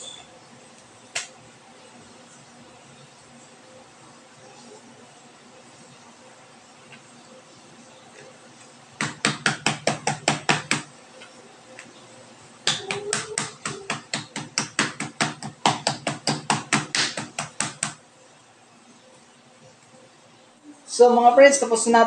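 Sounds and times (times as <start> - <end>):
knife pounding meat on cutting board: 9.0 - 10.9, 12.7 - 18.0.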